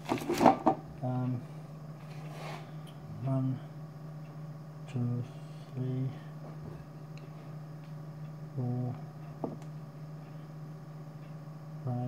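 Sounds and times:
steady low hum: 0:00.0 - 0:12.0
man counting under his breath: 0:04.8 - 0:06.4.

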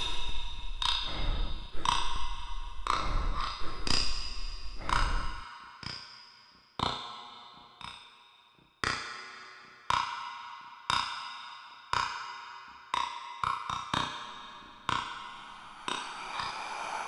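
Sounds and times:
low rumble: 0:15.0 - 0:17.0.

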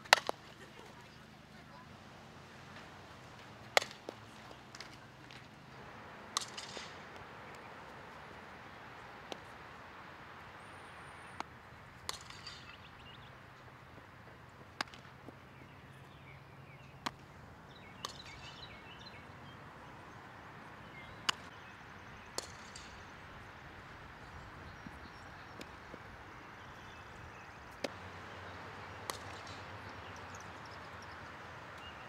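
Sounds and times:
outdoor background hiss: 0:00.0 - 0:32.0
bat hitting ball: 0:00.1 - 0:00.4, 0:03.7 - 0:04.9, 0:06.3 - 0:07.6, 0:12.0 - 0:12.7, 0:14.8 - 0:15.1, 0:29.0 - 0:29.8
ball smacking into glove: 0:03.8 - 0:05.0.

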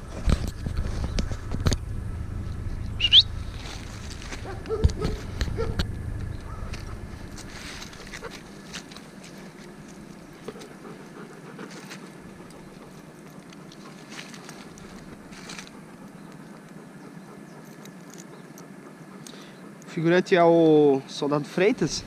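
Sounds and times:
close rustling and handling noise: 0:03.5 - 0:18.9.

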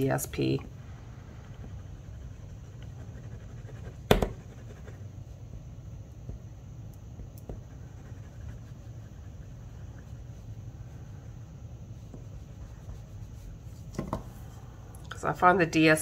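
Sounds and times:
low steady hum: 0:00.0 - 0:16.0
glue applicator scratching on card: 0:01.4 - 0:05.0.

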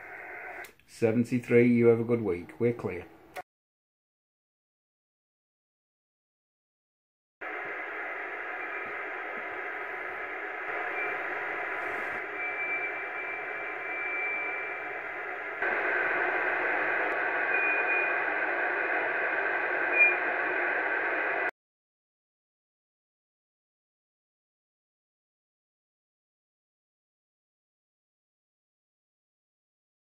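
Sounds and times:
radio receiver hiss: 0:00.0 - 0:01.1, 0:07.4 - 0:21.5.

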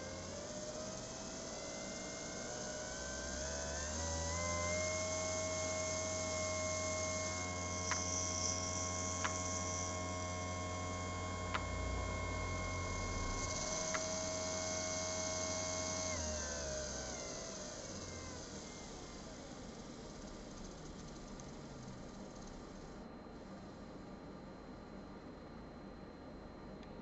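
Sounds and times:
small electric motor whining: 0:00.0 - 0:23.0
sharp clicks: 0:07.8 - 0:08.2, 0:09.2 - 0:09.7.

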